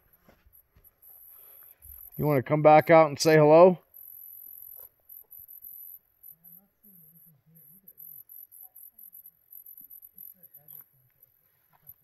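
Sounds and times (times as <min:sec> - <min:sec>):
crickets chirping: 0:00.1 - 0:02.4, 0:03.8 - 0:12.0.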